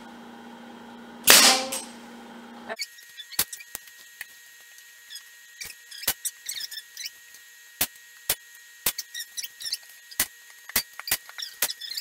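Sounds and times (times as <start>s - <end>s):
nail gun firing sharp crack: 1.2s - 2.0s.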